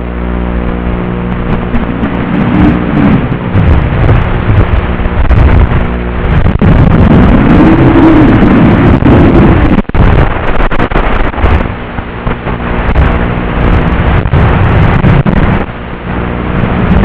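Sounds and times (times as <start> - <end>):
wind on microphone: 0.0 - 17.0.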